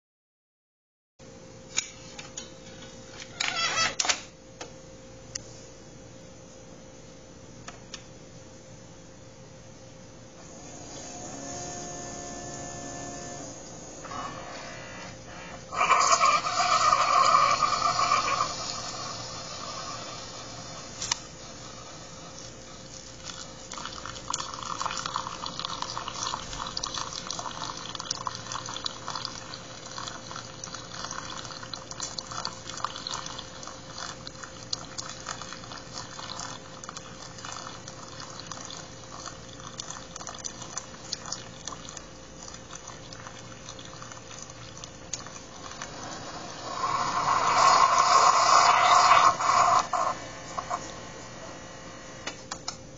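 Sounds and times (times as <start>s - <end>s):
faint steady hum: 1.2s - 52.9s
coffee brewer sputtering: 15.5s - 51.0s
coffee trickling into a cup: 15.7s - 50.9s.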